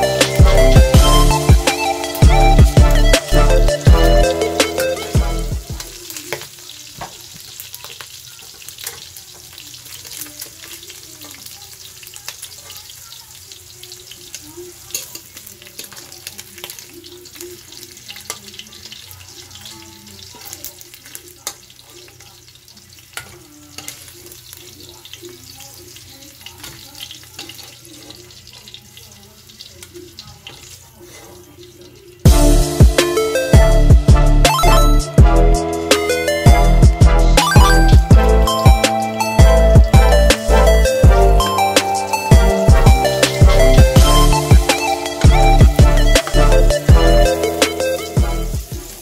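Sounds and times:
meat sizzling in hot fat: 0:00.0 - 0:34.5, 0:38.0 - 0:49.0
metal spatula scraping a pan: 0:30.5 - 0:31.6.

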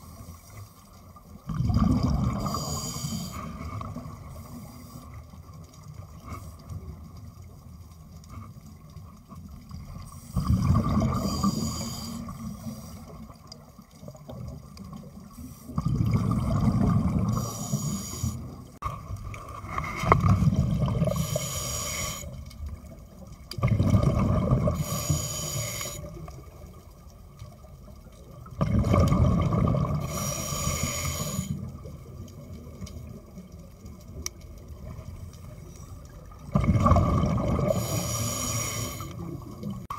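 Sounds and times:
exhaled bubbles rushing: 0:01.4 - 0:02.6, 0:10.4 - 0:11.7, 0:15.8 - 0:17.5, 0:19.0 - 0:21.2, 0:23.6 - 0:24.8, 0:28.4 - 0:30.2, 0:36.4 - 0:38.0
diver breathing through regulator: 0:02.3 - 0:03.6, 0:10.1 - 0:13.2, 0:17.3 - 0:18.5, 0:21.0 - 0:22.4, 0:24.6 - 0:26.1, 0:30.0 - 0:31.6, 0:37.6 - 0:39.3.

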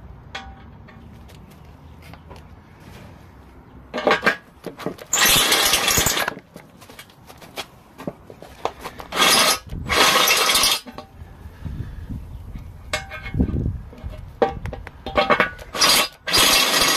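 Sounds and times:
power drill cutting into aluminium: 0:05.1 - 0:06.3, 0:09.1 - 0:10.9, 0:15.7 - 0:16.9.

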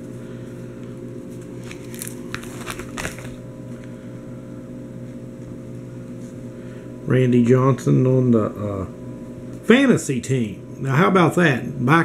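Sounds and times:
low electrical hum: 0:00.0 - 0:12.0
plastic binder pages crinkling: 0:01.3 - 0:04.0.

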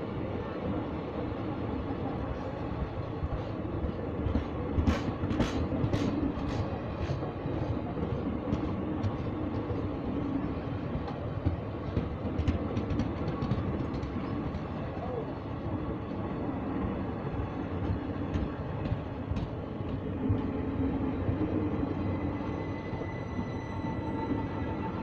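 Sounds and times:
rumble of wheels on rails: 0:00.0 - 0:25.0
clickety-clack over rail joints: 0:02.3 - 0:15.4, 0:17.7 - 0:20.5.

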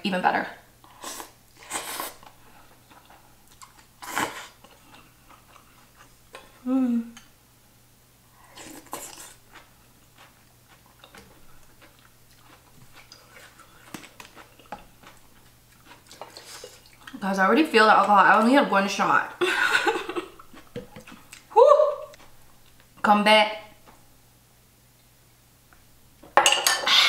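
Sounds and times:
slurping sips: 0:00.9 - 0:02.3
person humming: 0:06.6 - 0:07.2, 0:21.5 - 0:22.2.

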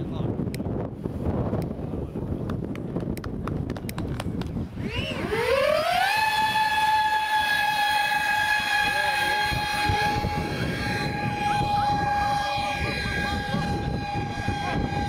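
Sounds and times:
wind buffeting microphone: 0:00.0 - 0:15.0
high-pitched electric motor whine: 0:04.8 - 0:15.0.

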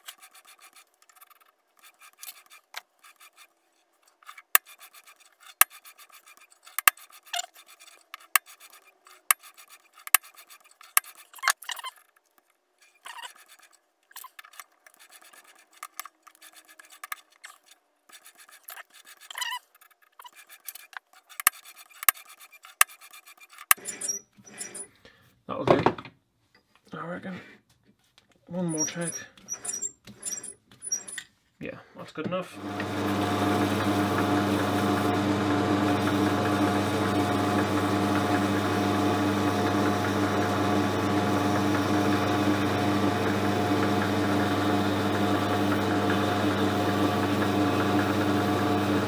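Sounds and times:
metal scraping and rubbing: 0:20.2 - 0:24.9, 0:28.6 - 0:31.3.

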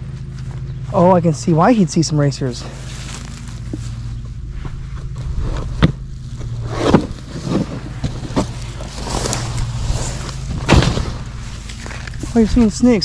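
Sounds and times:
footsteps through tall grass: 0:00.0 - 0:01.1, 0:02.5 - 0:06.6, 0:08.2 - 0:12.7
steady low hum: 0:00.0 - 0:13.0
carpet rustling and scraping: 0:02.6 - 0:12.8.

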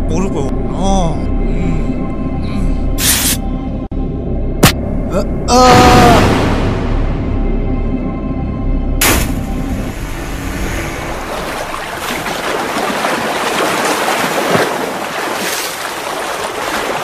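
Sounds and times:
water splashing and churning: 0:09.0 - 0:17.0.

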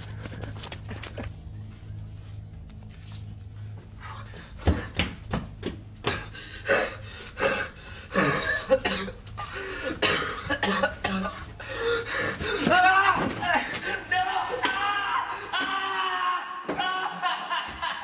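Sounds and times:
man coughing and gasping: 0:06.0 - 0:11.7.

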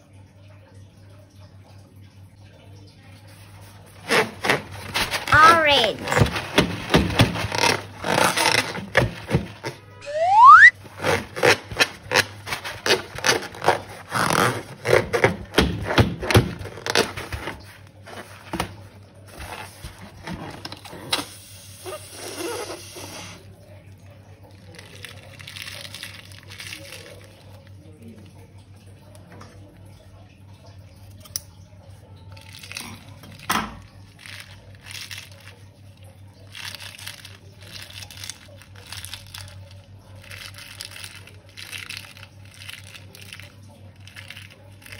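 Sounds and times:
balloon squeaking and crackling: 0:03.9 - 0:17.8, 0:21.8 - 0:23.4
slime squeezed into foam: 0:04.0 - 0:18.7.

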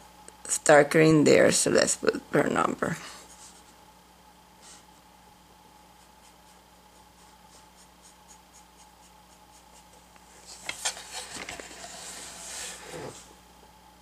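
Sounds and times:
paintbrush dabbing paint: 0:05.9 - 0:10.1.

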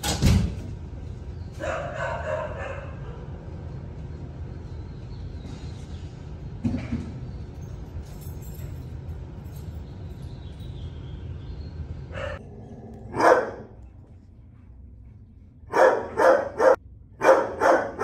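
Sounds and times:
low room hum: 0:00.0 - 0:18.0
dog barking: 0:01.6 - 0:03.3, 0:12.1 - 0:12.4, 0:13.1 - 0:13.8, 0:15.7 - 0:18.0.

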